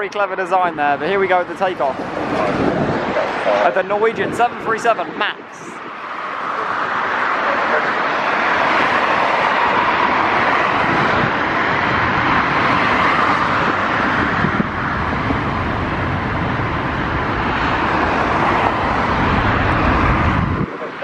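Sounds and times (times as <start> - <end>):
jet engines at takeoff: 0.6 - 21.0
deep rumble: 9.8 - 20.7.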